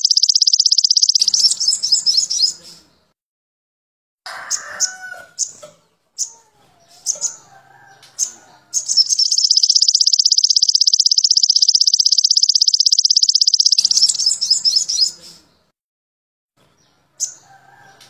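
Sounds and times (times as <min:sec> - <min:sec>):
bird chirping and trilling: 0:00.0 - 0:02.8, 0:06.2 - 0:15.4.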